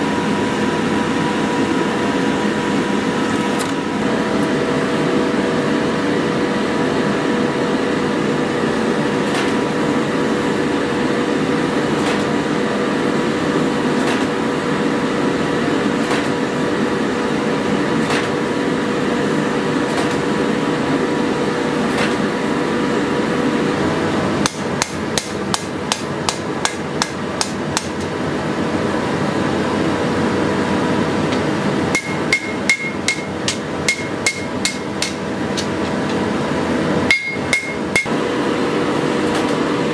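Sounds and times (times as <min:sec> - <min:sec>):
hammer blows on anvil: 0:31.4 - 0:35.7, 0:37.1 - 0:38.2.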